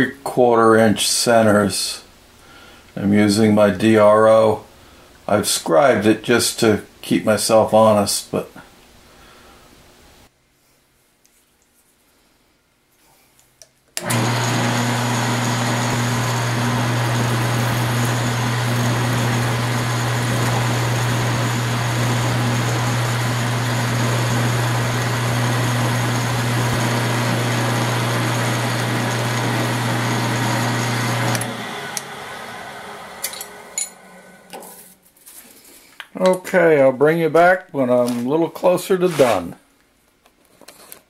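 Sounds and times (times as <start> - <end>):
drill press motor running: 14.0 - 34.6.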